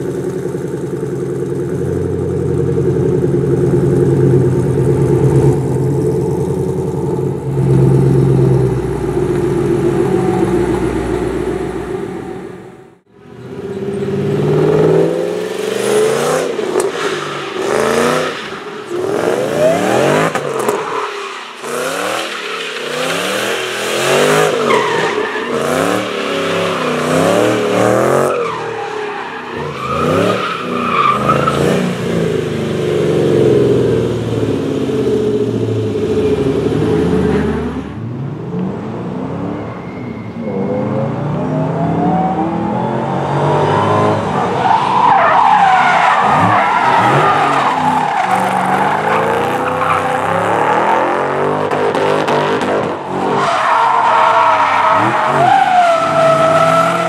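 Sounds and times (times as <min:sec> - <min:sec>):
car engine revving: 0:00.0 - 0:39.7, 0:40.4 - 0:57.0
tyre squeal: 0:39.5 - 0:41.0.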